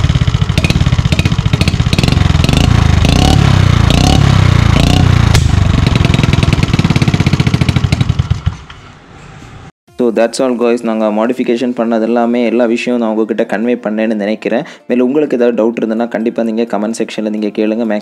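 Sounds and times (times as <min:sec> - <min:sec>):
scooter engine revving: 0:00.0 - 0:09.1.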